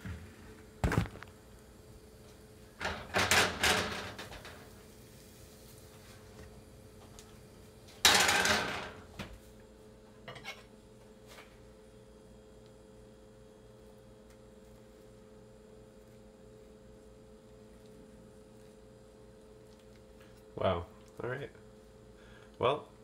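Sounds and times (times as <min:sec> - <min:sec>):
steady low hum: 0:00.0 - 0:23.0
kitchenware clattering: 0:08.0 - 0:09.1.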